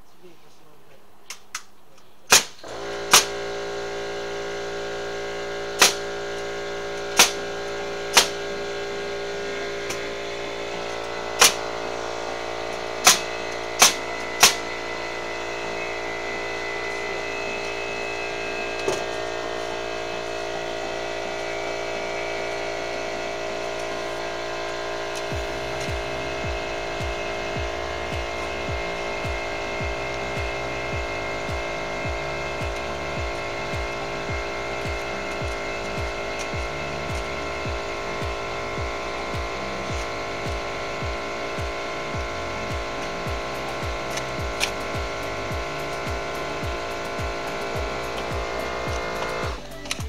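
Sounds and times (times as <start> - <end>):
sharp bangs of striking tools: 2.3 - 3.6, 5.6 - 8.9, 9.8 - 19.8
steady motor hum: 2.3 - 50.0.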